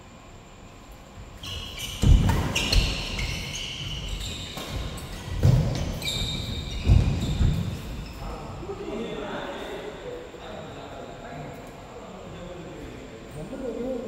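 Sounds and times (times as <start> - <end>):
sneakers squeaking on court: 1.3 - 8.6
heavy footfalls: 4.4 - 8.0.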